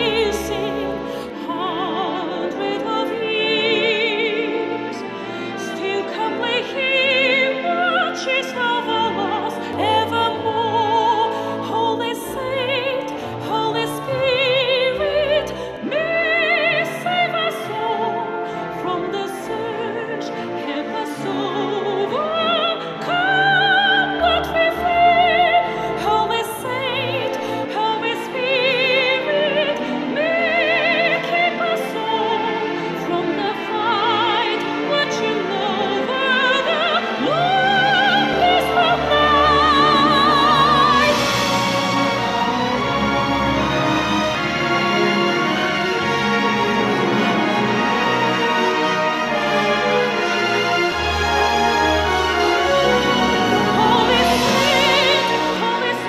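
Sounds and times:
operatic singing with orchestra: 0.0 - 56.0.

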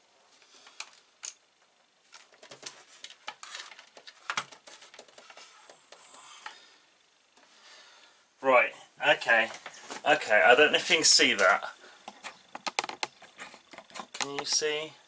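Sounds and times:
cables rustling: 2.1 - 6.6, 9.3 - 14.8.

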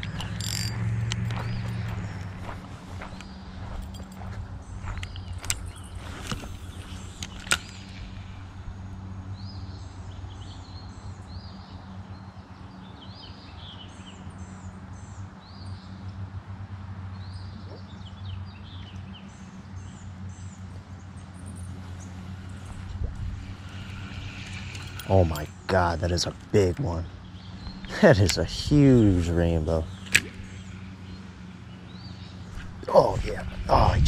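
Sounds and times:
sharp clicks: 0.0 - 2.4
small birds chirping: 0.0 - 34.0
steady low hum: 0.0 - 34.0.

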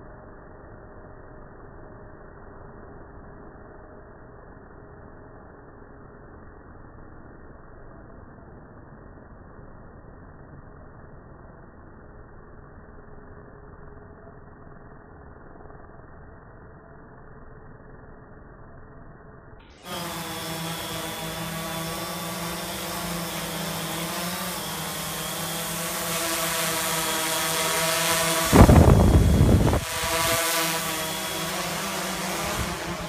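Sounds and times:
drone propellers buzzing: 19.8 - 33.0
loud low rush of noise: 22.1 - 33.0.

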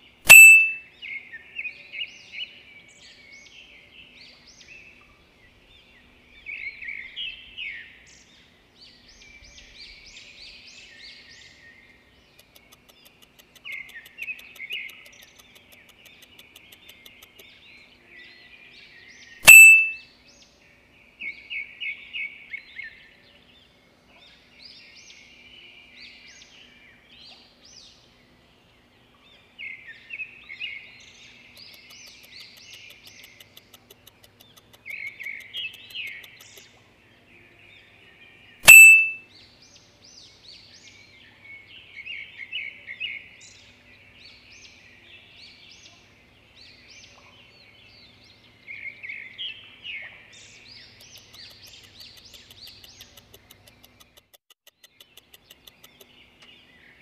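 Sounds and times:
birds chirping and singing: 0.0 - 57.0
loud sharp ding: 0.3 - 0.8, 19.4 - 20.0, 38.6 - 39.2.

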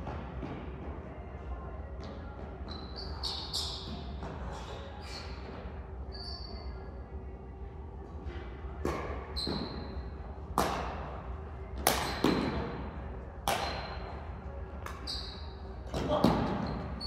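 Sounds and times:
rackets hitting shuttlecock: 10.5 - 11.2, 11.8 - 12.8, 13.4 - 14.1.

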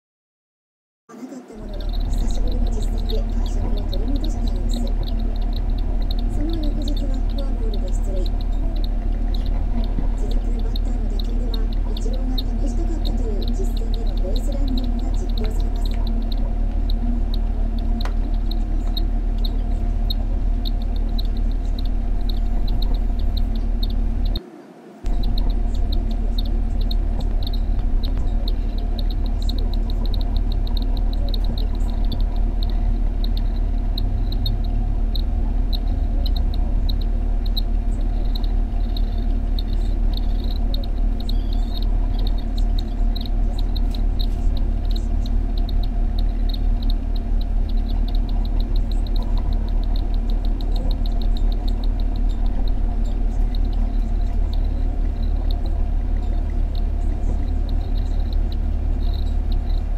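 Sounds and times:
electrical hum: 1.1 - 59.9
chicks begging calls: 1.2 - 24.4, 25.0 - 59.9.

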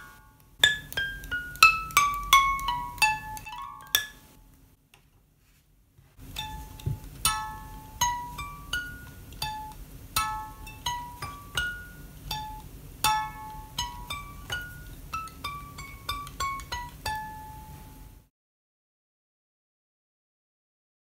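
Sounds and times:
plucked harp melody: 0.0 - 4.3, 6.2 - 18.0.

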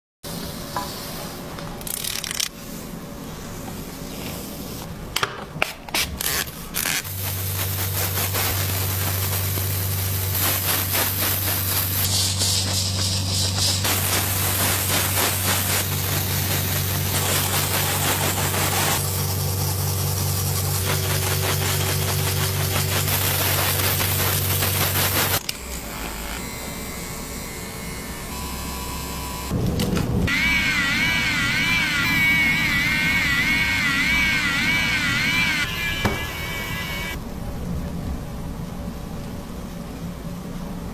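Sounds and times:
brush scratching on scalp: 20.8 - 25.4.

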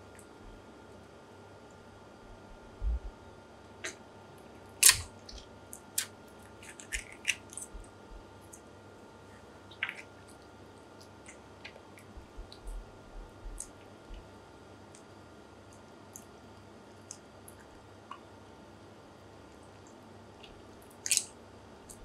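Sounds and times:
wet clicks and squelches: 4.8 - 7.9.

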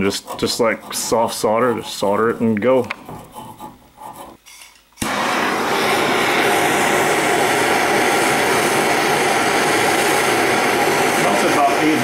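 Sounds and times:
gas torch flame burning: 5.0 - 12.0.

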